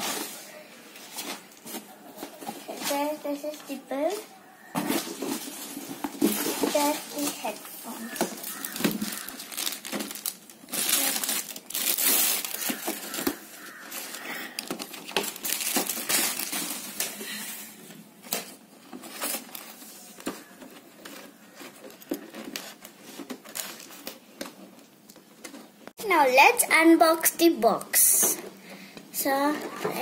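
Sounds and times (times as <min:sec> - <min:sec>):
plastic packaging crinkling: 0:04.8 - 0:17.4, 0:18.2 - 0:25.7.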